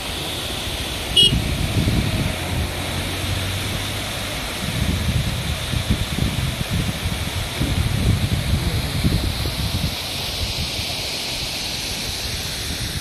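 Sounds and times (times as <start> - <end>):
waterfall rushing: 0.0 - 13.0
vehicle horn toot: 1.2 - 1.4
vehicle engine passing: 1.2 - 5.0.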